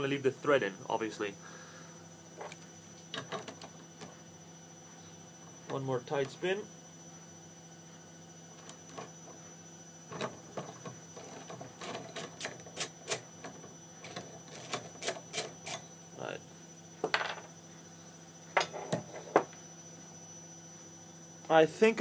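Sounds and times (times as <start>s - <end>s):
steady electrical hum: 0.0s - 22.0s.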